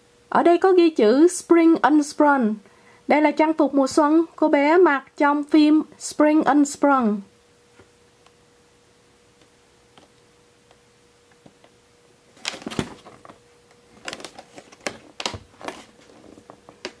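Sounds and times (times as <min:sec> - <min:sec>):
plastic and cardboard crackling: 0:12.3 - 0:17.0.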